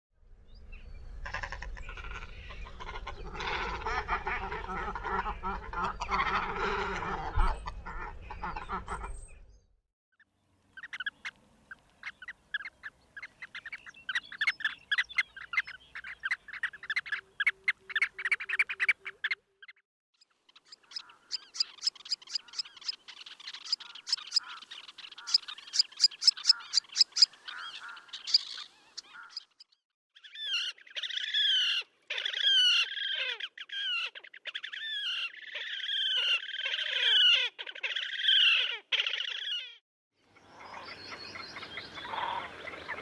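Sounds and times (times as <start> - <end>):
water bird calls: 20.4 - 39.8, 40.4 - 43.0.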